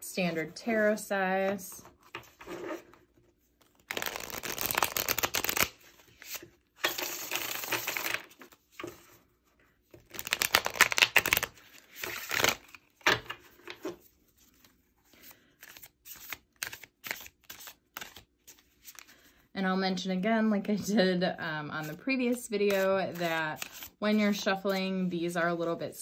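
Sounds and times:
cards riffle shuffled: 3.6 - 8.6, 10.1 - 12.9, 14.6 - 19.1, 22.7 - 23.9.

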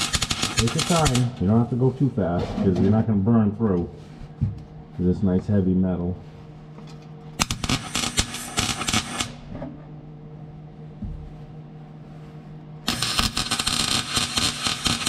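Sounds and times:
welder arc crackling: 0.0 - 1.8, 7.4 - 9.4, 12.9 - 15.0
low steady hum: 0.0 - 7.9, 8.5 - 13.4.

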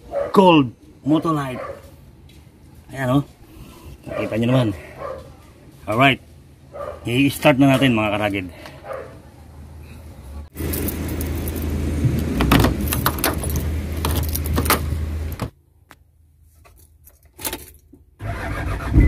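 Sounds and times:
car keys jangling: 10.6 - 11.8, 12.4 - 15.4.

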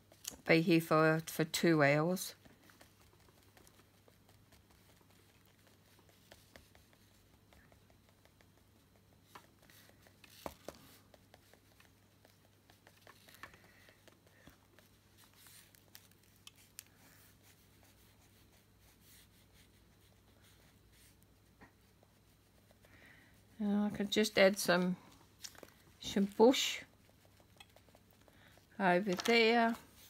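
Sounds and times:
stylus scratching and tapping card: 0.0 - 16.9, 28.8 - 30.0
low steady hum: 0.0 - 30.0.

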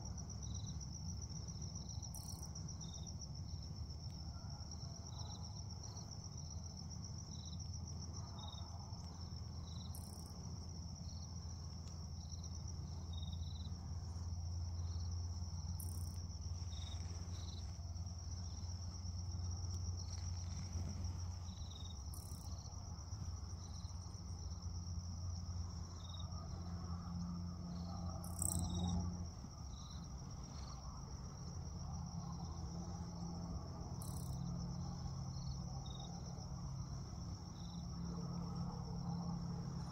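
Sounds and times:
crickets trilling: 0.0 - 39.9
low steady rumble: 0.0 - 39.9.

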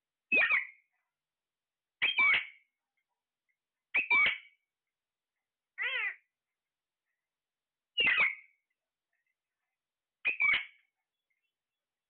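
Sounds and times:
parakeets squawking: 4.0 - 4.5, 5.8 - 6.1, 8.0 - 8.4, 10.3 - 10.8.

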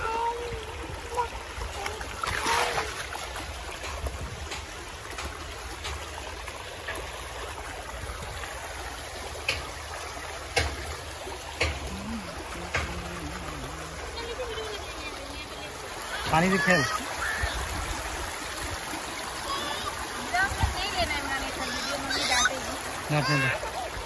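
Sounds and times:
river flowing over pebbles: 0.0 - 24.0
sharp knocks: 10.5 - 11.0.

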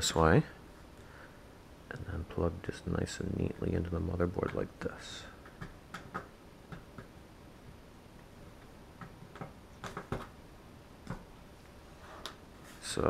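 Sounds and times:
cable clicks and taps on cardboard: 9.0 - 10.3.

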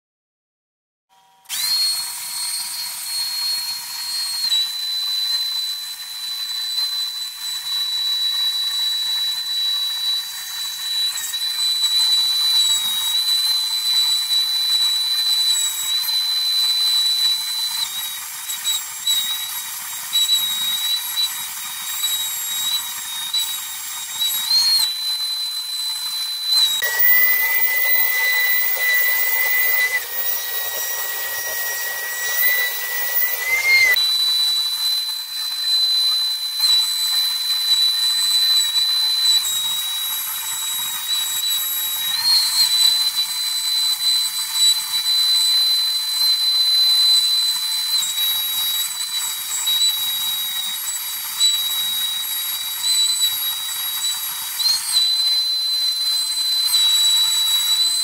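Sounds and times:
router spindle high-pitched whine: 1.1 - 58.0
lower whine: 26.6 - 34.0.

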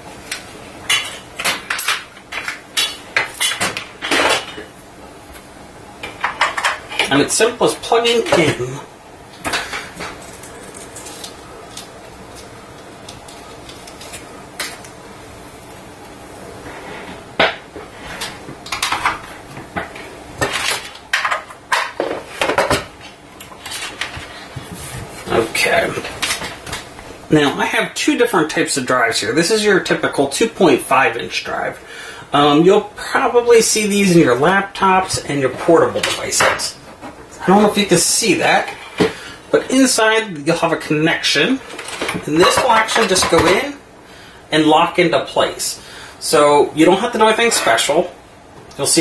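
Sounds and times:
scrape: 16.6 - 17.2.

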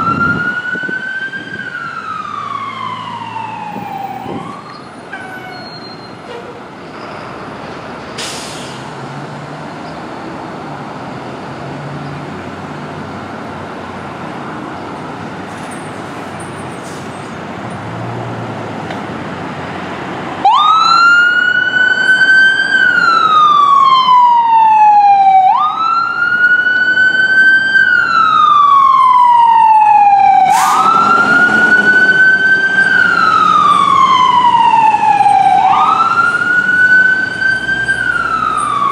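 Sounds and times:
wailing siren: 0.0 - 6.0, 20.4 - 38.9
ambulance engine rumbling: 0.0 - 38.9
brief hiss: 8.2 - 8.9.

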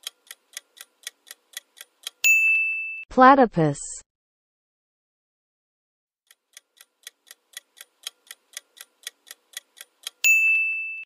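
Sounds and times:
clock ticking: 0.0 - 2.3, 6.3 - 10.6.

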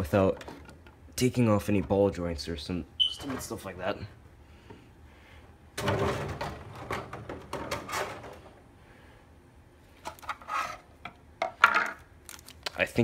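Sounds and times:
plastic packaging rustling: 12.2 - 13.0.

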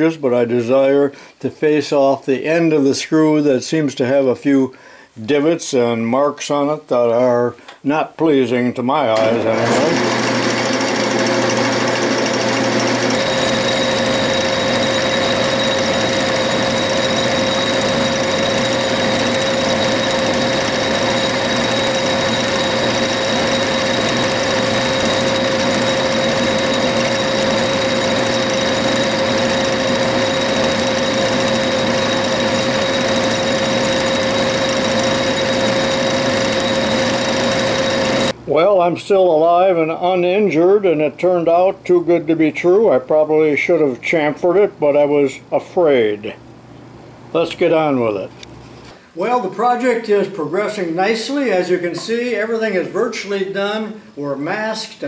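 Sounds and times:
machine whine: 9.2 - 38.4
metal lathe cutting: 9.2 - 38.4.

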